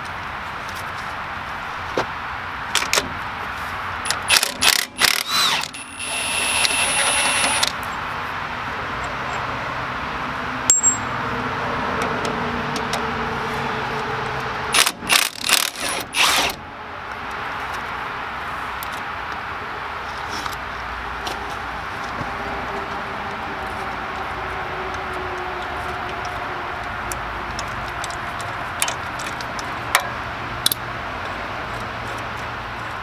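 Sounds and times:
impact wrench whine: 4.1 - 7.8
metallic clink: 10.7 - 11.1.

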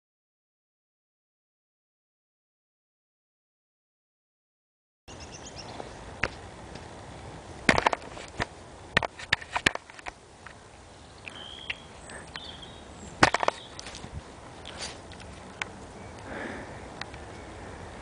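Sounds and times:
bird chirps: 5.1 - 6.0, 10.9 - 13.9
outdoor hiss: 10.0 - 18.0
cat sniffing: 14.6 - 15.2.

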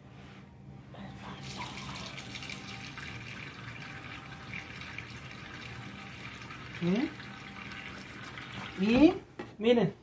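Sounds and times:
faucet pouring into metal pan: 1.4 - 8.9.

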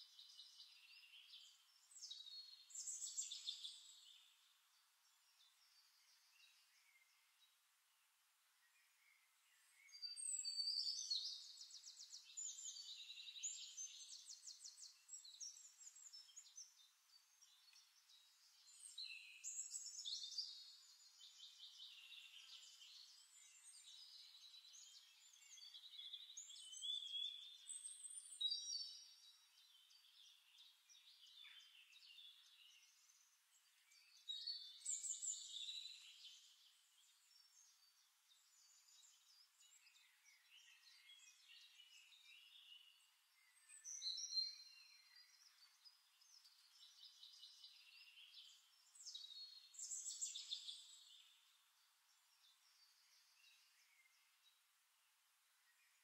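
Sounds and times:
high-pitched birdsong: 0.0 - 4.4, 9.6 - 54.6.

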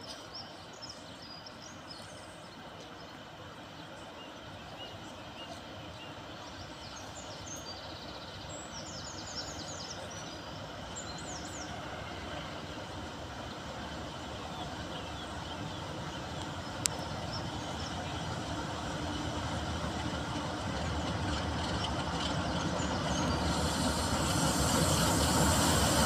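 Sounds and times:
diesel locomotive low rumble: 0.1 - 26.0
birds chirping: 14.6 - 25.9.

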